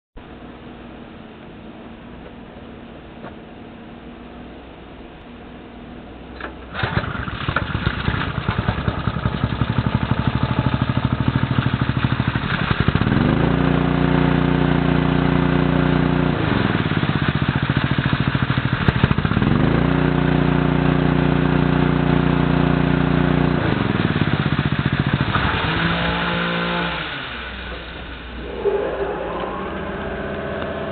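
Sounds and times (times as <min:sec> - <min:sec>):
petrol water pump engine running: 0:06.4 - 0:28.5
water gushing: 0:24.1 - 0:28.5.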